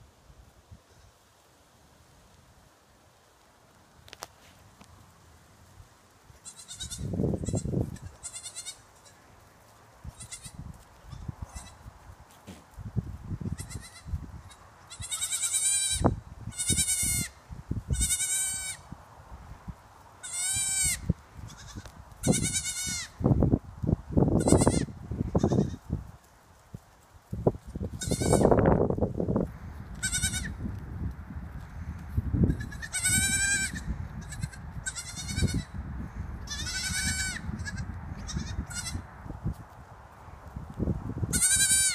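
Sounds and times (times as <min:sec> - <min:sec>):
goat kids bleating: 0:06.4 - 0:09.2, 0:10.1 - 0:11.9, 0:13.5 - 0:18.8, 0:20.2 - 0:23.2, 0:24.4 - 0:25.8, 0:27.9 - 0:28.6, 0:29.9 - 0:30.6, 0:32.4 - 0:35.8, 0:36.5 - 0:39.0, 0:41.3 - 0:41.9.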